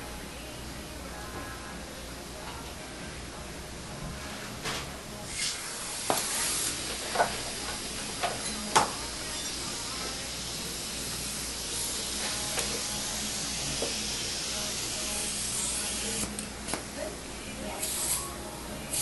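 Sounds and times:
dental suction hissing: 5.3 - 16.4, 17.8 - 19.0.

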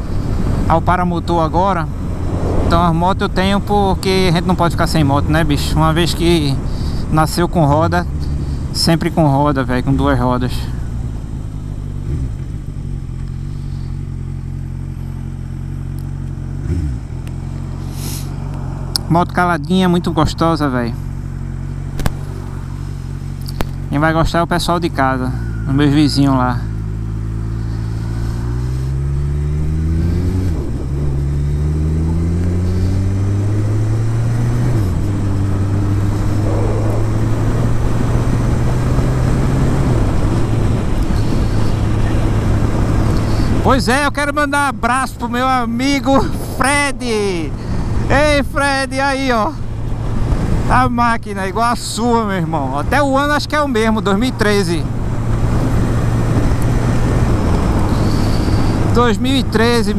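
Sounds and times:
wind noise: 1.3 - 5.3, 29.8 - 43.7, 54.9 - 58.9
motorcycle engine idling smoothly: 3.0 - 59.9.

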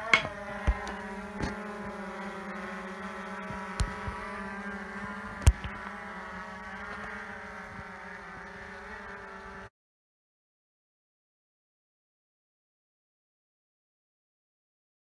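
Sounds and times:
drone propellers buzzing: 0.0 - 9.7.

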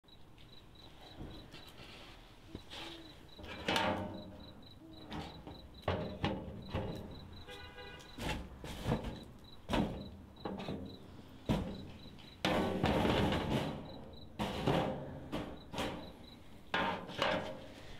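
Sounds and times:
rapid high-pitched beeping: 2.6 - 8.2, 11.7 - 12.4, 15.6 - 16.4.

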